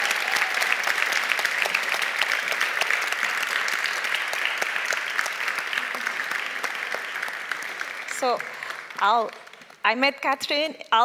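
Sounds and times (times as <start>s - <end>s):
large audience applauding: 0.0s - 9.8s.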